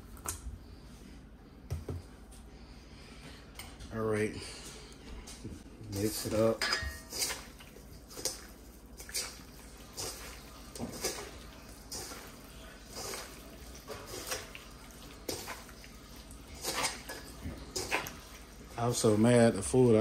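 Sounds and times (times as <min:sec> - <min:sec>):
wet squishing of meat mixing: 0:06.0 - 0:20.0.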